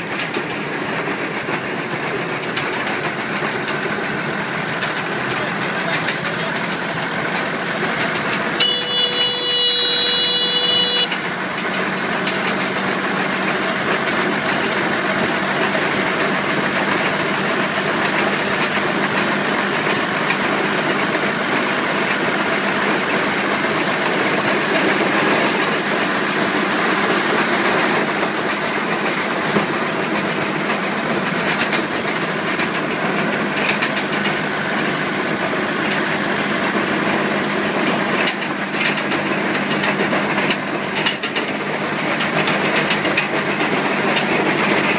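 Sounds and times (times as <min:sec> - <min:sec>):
hay baler running: 0:00.0 - 0:44.9
tractor engine running: 0:00.0 - 0:44.9
loud high-pitched tone: 0:08.6 - 0:11.3.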